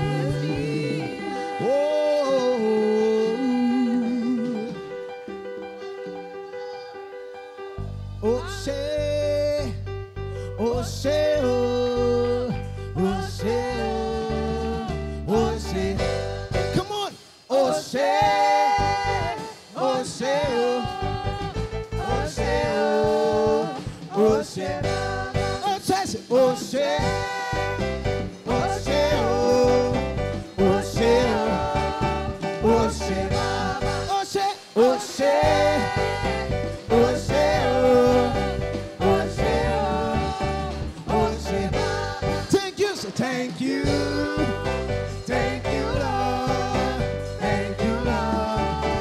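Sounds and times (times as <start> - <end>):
electric keyboard: 0.0 - 17.0, 20.3 - 42.8, 43.7 - 49.0
drums: 15.7 - 49.0.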